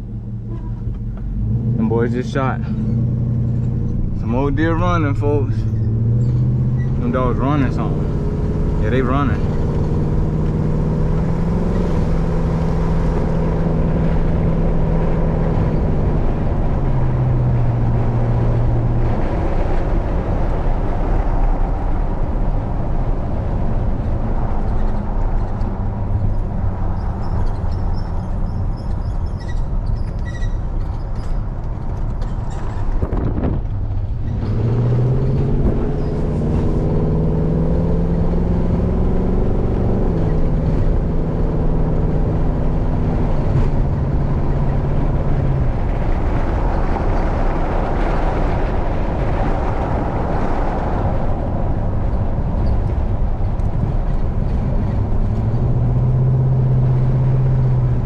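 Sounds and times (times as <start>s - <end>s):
truck engine hum: 0.0s - 58.0s
tyre noise on road: 0.0s - 58.0s.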